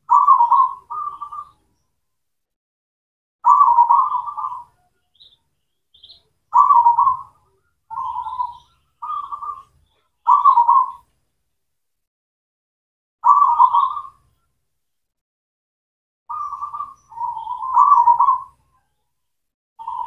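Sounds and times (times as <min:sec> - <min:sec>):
dove cooing: 0:00.0 - 0:01.6, 0:03.4 - 0:05.3, 0:06.0 - 0:11.1, 0:13.2 - 0:14.2, 0:16.3 - 0:18.7, 0:19.8 - 0:20.0.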